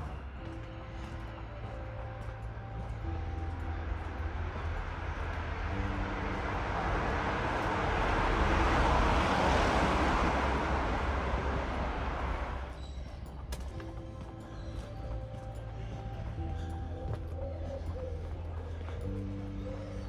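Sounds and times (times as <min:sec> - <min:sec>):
quiet background music: 0:00.0 - 0:20.0
vehicle passing by: 0:03.6 - 0:12.8.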